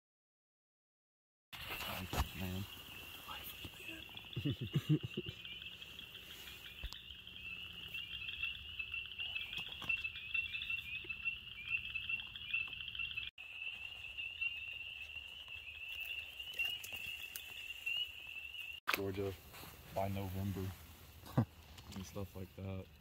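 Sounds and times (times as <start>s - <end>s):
frog chorus high peeps: 2.4s - 18.7s.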